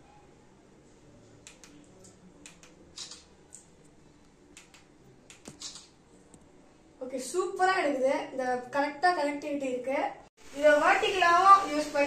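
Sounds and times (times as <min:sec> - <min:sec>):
selfie stick clicks and taps: 0:04.6 - 0:05.9.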